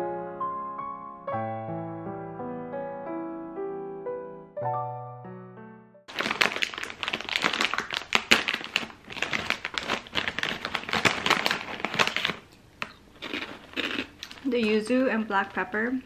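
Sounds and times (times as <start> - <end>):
plastic snack bag crinkling: 6.1 - 14.5.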